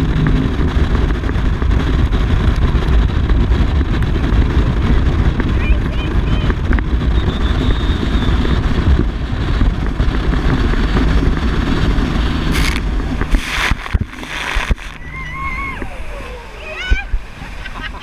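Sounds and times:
speedboat running: 0.0 - 18.0
wind buffeting microphone: 0.0 - 18.0
spray splashing: 12.0 - 15.3
high voice crying out: 14.9 - 17.2.

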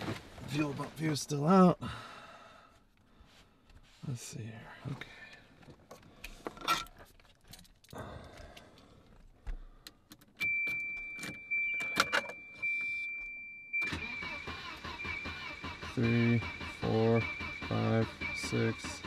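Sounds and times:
car keys jangling: 5.8 - 13.4
engine starter cranking: 13.8 - 19.0.

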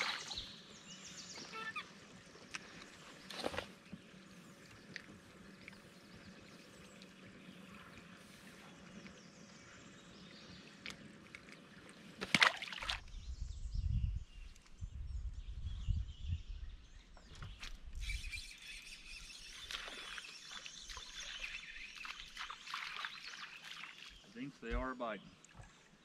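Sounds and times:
songbirds chirping: 0.0 - 26.0
wind rumbling on microphone: 13.0 - 18.4.

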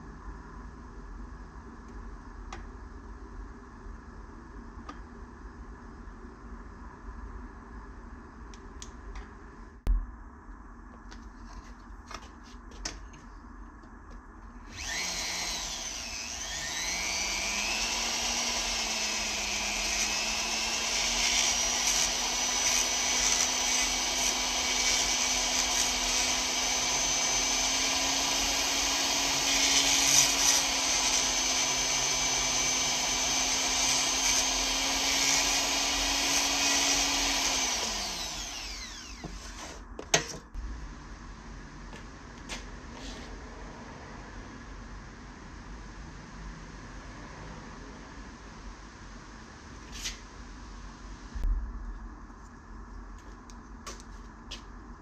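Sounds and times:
rotary grinder whining: 14.7 - 39.8.

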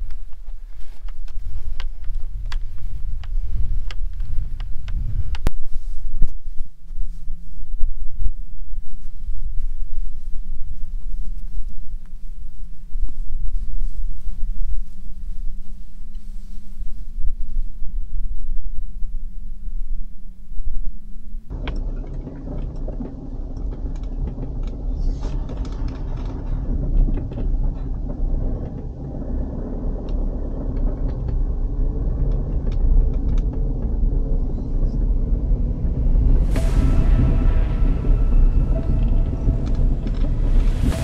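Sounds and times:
dull low rumble: 0.0 - 41.0
small rattles and knocks: 21.5 - 34.1
vehicle driving on rough road: 21.5 - 41.0.

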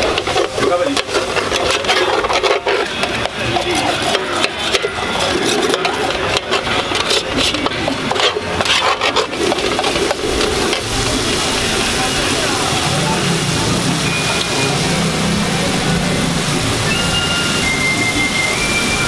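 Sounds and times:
metal spatula scraping a pan: 0.0 - 10.8
food sizzling: 0.0 - 19.0.

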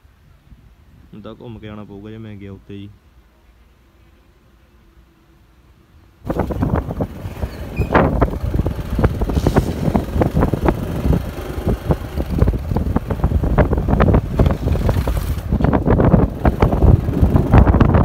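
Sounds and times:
wind buffeting microphone: 6.2 - 18.0.

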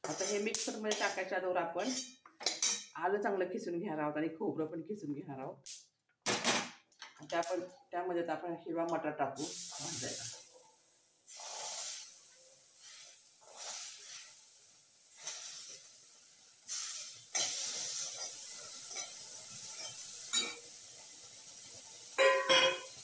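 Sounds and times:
spatula scraping and clicking: 0.0 - 1.2
peas sizzling in a pan: 0.0 - 2.9, 9.4 - 23.0.

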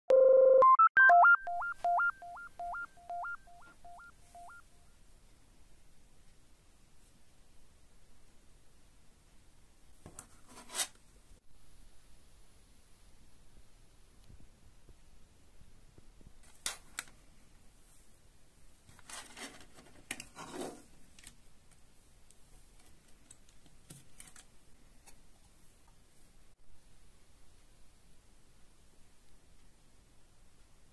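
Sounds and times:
synthesizer jingle: 0.1 - 4.6.

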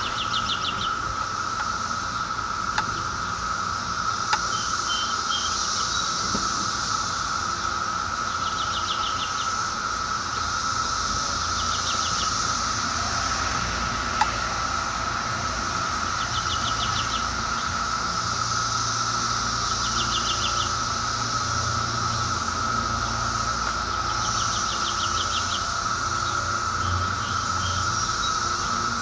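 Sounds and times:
cicadas droning: 0.0 - 29.0
rapid ticks: 4.2 - 4.6.

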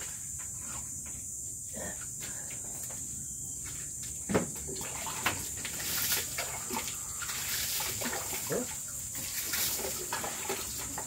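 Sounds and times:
water splashing on concrete: 4.7 - 11.0.

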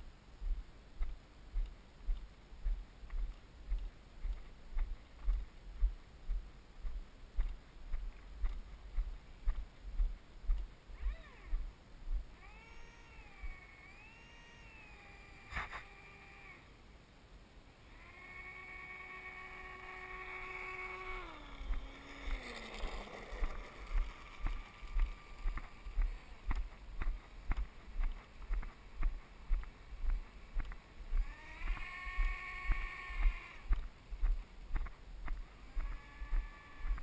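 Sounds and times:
low thuds: 0.0 - 12.4
small electric motor whine: 10.9 - 11.7, 12.3 - 16.8, 17.8 - 33.9, 34.8 - 37.0.

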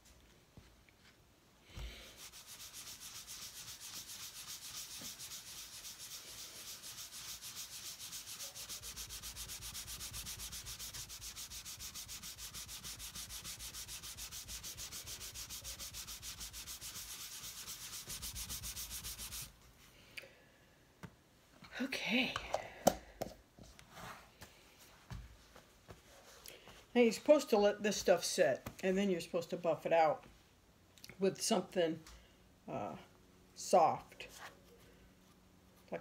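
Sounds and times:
applicator pad rubbing leather: 2.1 - 19.5.

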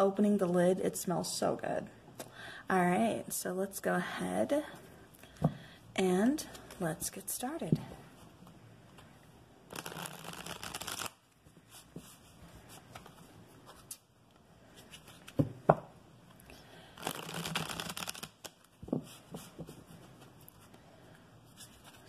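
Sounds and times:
cards being shuffled: 9.7 - 14.0, 14.7 - 15.5, 17.0 - 20.3, 21.5 - 22.0.

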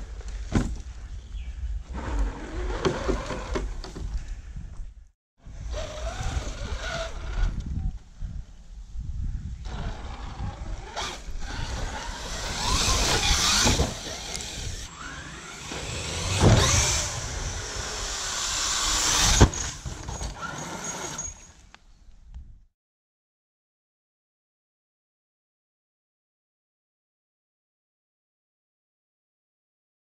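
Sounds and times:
toy truck motor whining: 5.6 - 7.8, 9.6 - 21.5
tyres scrabbling in dirt: 9.7 - 21.7
sharp landing impacts: 11.0 - 20.5.

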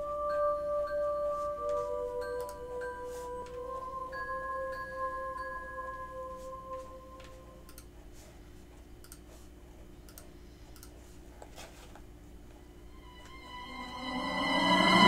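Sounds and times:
ringing chime tone: 0.0 - 7.1, 13.0 - 15.0
low steady hum: 0.0 - 15.0.

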